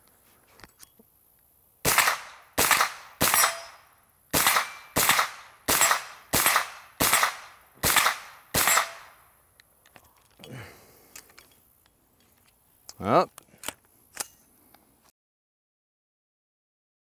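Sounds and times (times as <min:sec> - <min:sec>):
gunshots with echo: 0:01.9 - 0:03.8, 0:04.4 - 0:09.2.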